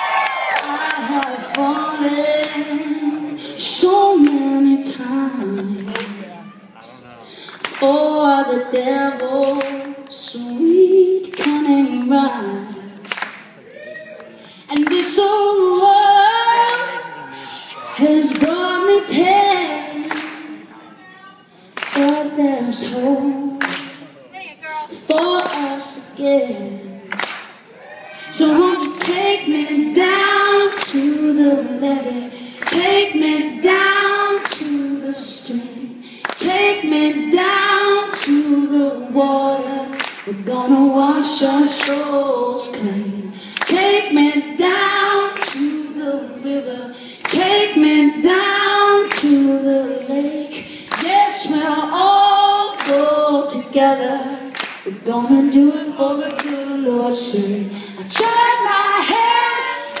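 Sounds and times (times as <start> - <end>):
woman singing: 0.0 - 6.5, 7.5 - 13.1, 14.6 - 27.3, 28.2 - 60.0
tambourine struck and shaken: 2.4 - 2.9, 5.8 - 6.6, 9.1 - 13.6, 16.6 - 17.4, 18.2 - 20.8, 21.8 - 26.2, 26.8 - 60.0.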